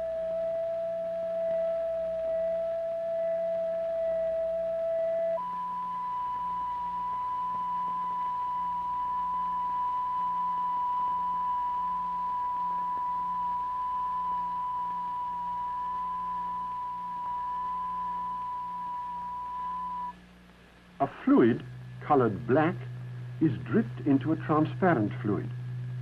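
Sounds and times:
high-pitched electronic tone: 0:00.0 - 0:20.2
faint low hum: 0:00.0 - 0:26.0.

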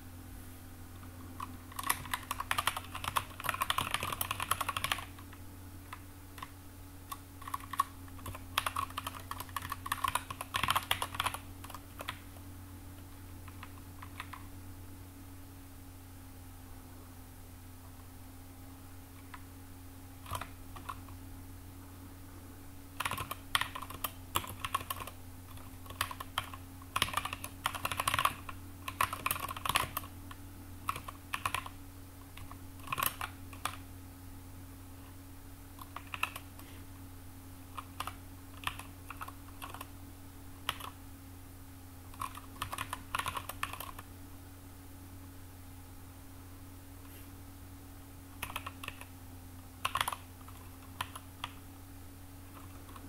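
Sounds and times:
steady low hum: 0:00.0 - 0:53.0
typing on computer keyboard: 0:01.4 - 0:06.5, 0:07.1 - 0:12.3, 0:13.5 - 0:14.5, 0:20.2 - 0:21.1, 0:23.0 - 0:30.1, 0:30.8 - 0:31.8, 0:32.4 - 0:33.8, 0:35.8 - 0:36.7, 0:37.7 - 0:39.9, 0:40.6 - 0:41.0, 0:42.1 - 0:44.0, 0:48.4 - 0:49.1, 0:49.8 - 0:51.6.

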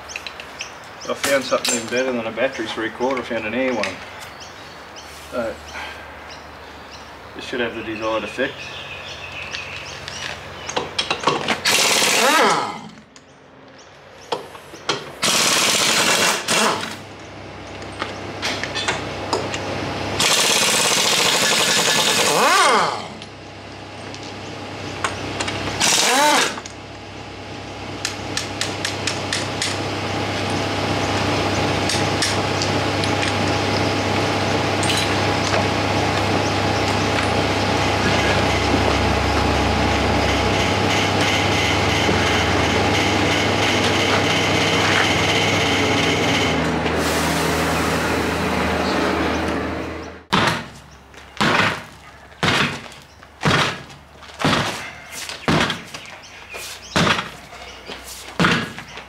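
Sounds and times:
steady machine noise: 0:09.2 - 0:13.1, 0:15.2 - 0:56.0
air impact wrench rattling: 0:11.0 - 0:13.0, 0:15.2 - 0:17.0, 0:20.2 - 0:23.2, 0:25.4 - 0:26.6
heavy thuds: 0:51.4 - 0:56.0, 0:58.3 - 0:58.9.

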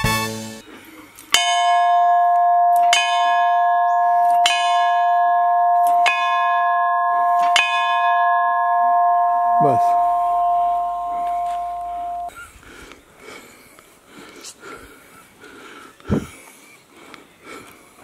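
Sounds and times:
large temple bell ringing: 0:01.4 - 0:12.3.

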